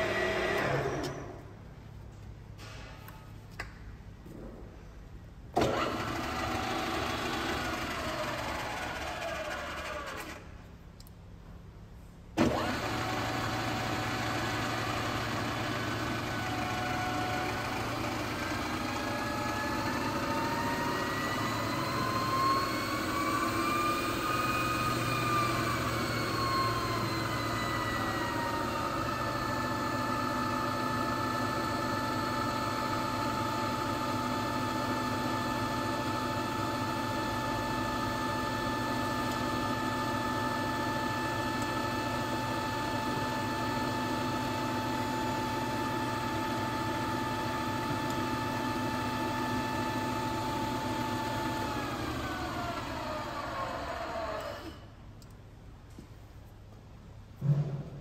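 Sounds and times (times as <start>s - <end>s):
milling machine spindle whine: 12.4s - 54.8s.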